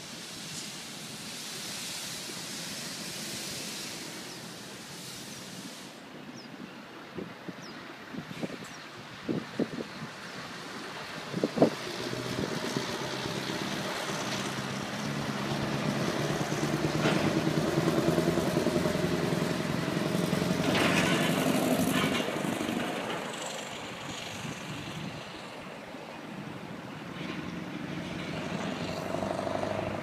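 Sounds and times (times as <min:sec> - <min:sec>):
truck engine passing: 0:10.5 - 0:30.0.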